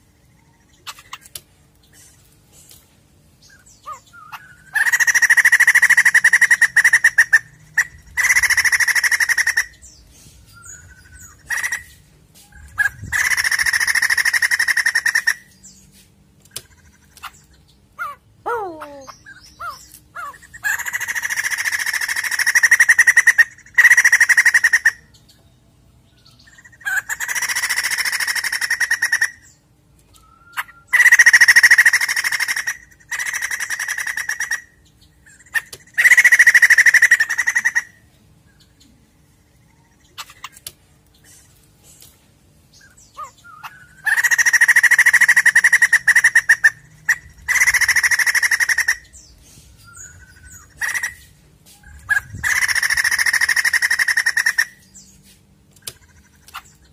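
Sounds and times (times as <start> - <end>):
bird rattling laughing song: 51.8 - 54.7.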